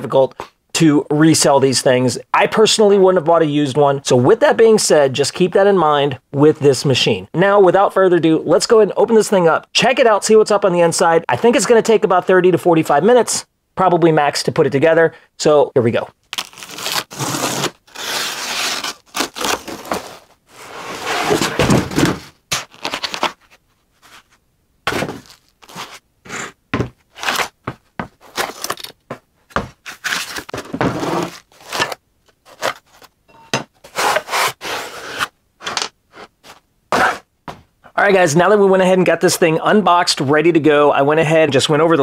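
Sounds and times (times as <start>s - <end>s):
cardboard and foam rustling: 16.6s - 33.2s.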